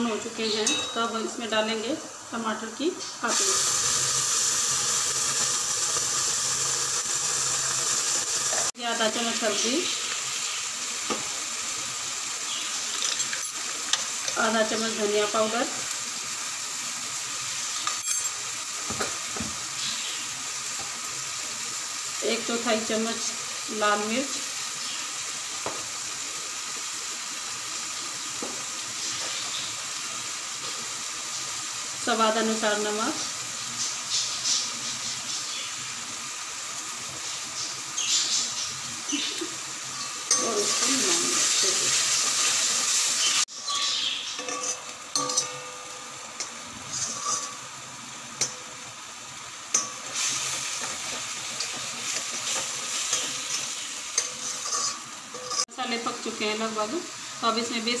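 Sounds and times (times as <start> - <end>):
paste sizzling in hot oil: 0.0 - 58.0
metal clinks: 0.6 - 1.1
ladle scraping a metal pot: 46.8 - 47.6, 54.2 - 55.7.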